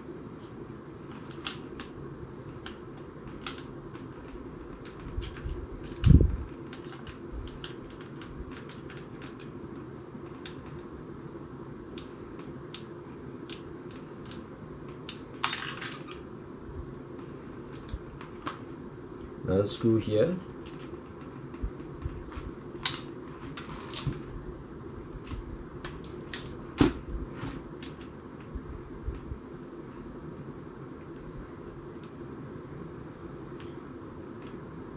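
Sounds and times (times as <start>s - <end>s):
steady low hum: 0.0s - 34.9s.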